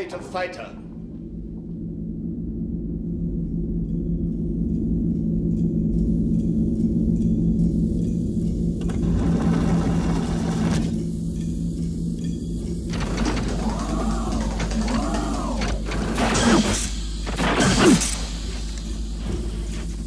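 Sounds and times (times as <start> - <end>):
low mechanical hum: 0.0 - 20.0
hiss: 9.6 - 20.0.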